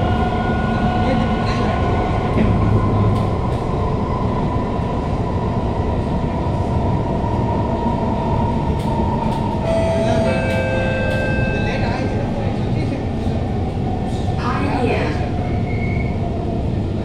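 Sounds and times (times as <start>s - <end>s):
train wheels rumbling on rail: 0.0s - 17.0s
low tone: 9.6s - 12.1s.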